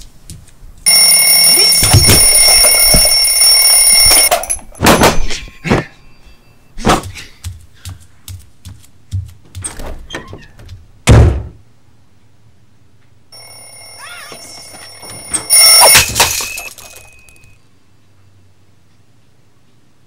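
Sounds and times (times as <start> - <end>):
running footsteps: 0.0 - 0.9, 6.8 - 11.0
twin-bell alarm clock ringing: 0.9 - 4.8, 13.4 - 17.6
heavy thunk: 11.0 - 11.6.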